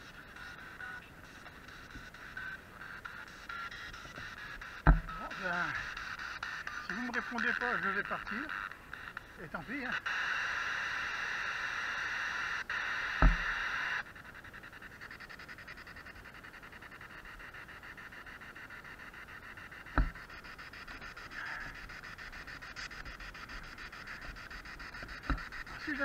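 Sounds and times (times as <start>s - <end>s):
fast even ticking: 0.0s - 10.1s, 13.2s - 26.0s
radio static hiss: 0.0s - 26.0s
dull thumps: 3.9s - 6.0s, 13.2s - 13.6s, 19.8s - 26.0s.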